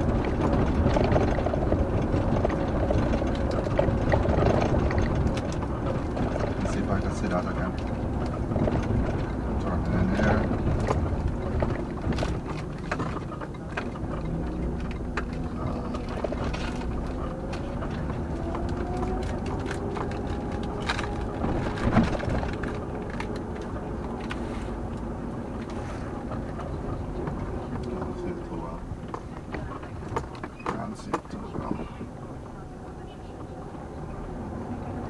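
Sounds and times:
light clicks and rattles: 0.0s - 32.2s
car engine and road noise: 0.0s - 35.0s.

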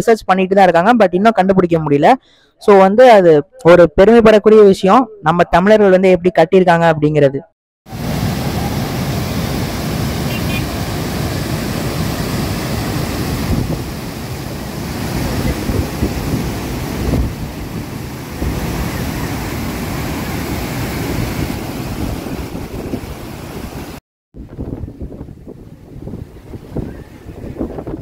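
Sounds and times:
water rushing through dam gates: 7.9s - 24.0s
wind buffeting microphone: 8.0s - 28.0s.

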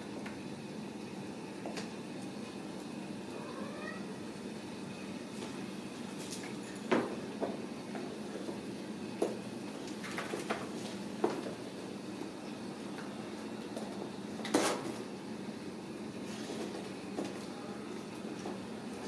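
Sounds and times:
steady low hum: 0.0s - 19.0s
kitten mewing: 3.3s - 4.2s.

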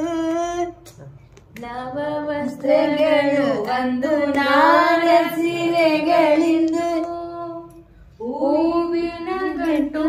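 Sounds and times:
person singing unaccompanied: 0.0s - 1.0s.

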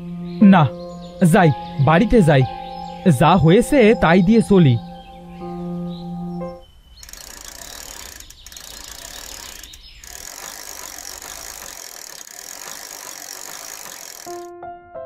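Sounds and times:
bicycle chain and freewheel whirring: 7.0s - 14.5s.

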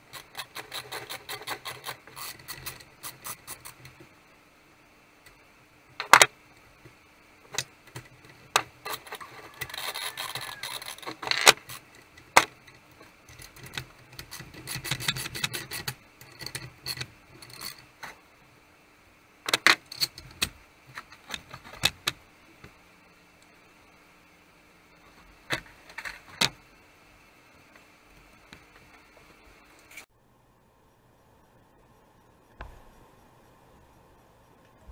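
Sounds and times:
metal parts rattling and rubbing: 0.0s - 4.0s, 7.5s - 18.2s
metal parts clicking and knocking: 7.5s - 18.2s.

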